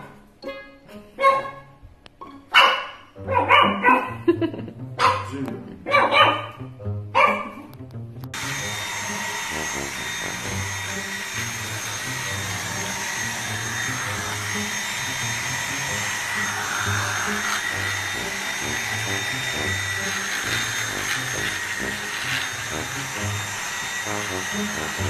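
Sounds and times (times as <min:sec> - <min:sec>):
background music: 0:00.0 - 0:25.0
stick vacuum motor whine: 0:08.3 - 0:25.0.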